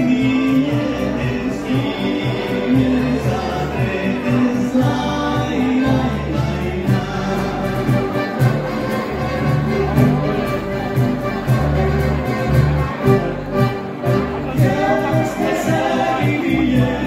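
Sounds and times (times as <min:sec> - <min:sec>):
voices singing into microphones: 0:00.0 - 0:09.8, 0:14.4 - 0:17.0
folk ensemble with flutes and guitars: 0:00.0 - 0:17.0.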